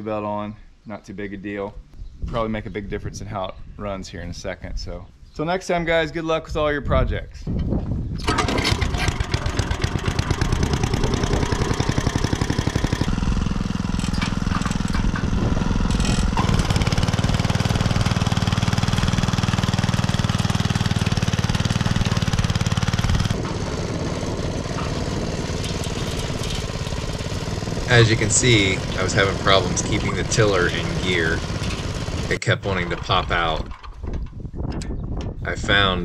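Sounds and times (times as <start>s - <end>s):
tiller engine running: 8.2s - 34.0s.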